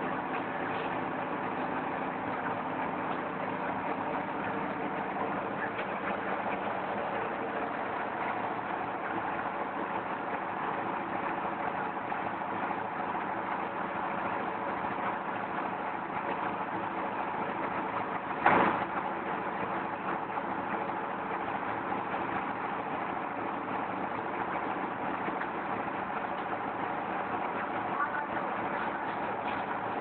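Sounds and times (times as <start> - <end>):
clay extruder machine droning: 0.0 - 30.0.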